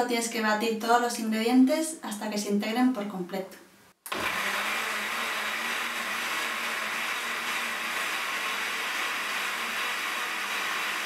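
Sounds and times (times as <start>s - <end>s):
blender running: 4.1s - 11.0s.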